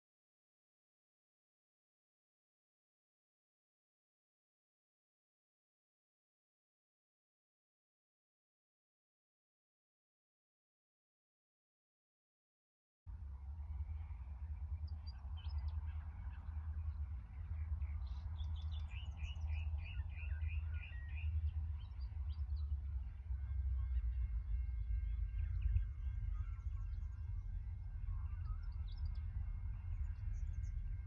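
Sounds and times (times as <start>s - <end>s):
faint high-pitched whine: 13.1s - 31.0s
steady low rumble: 13.1s - 31.0s
birds chirping: 14.6s - 24.6s.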